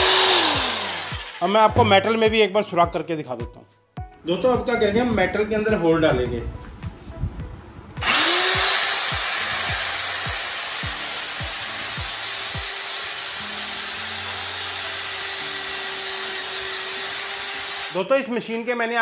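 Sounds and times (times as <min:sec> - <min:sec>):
drill whining through metal: 0:00.0 - 0:01.8, 0:08.0 - 0:18.0.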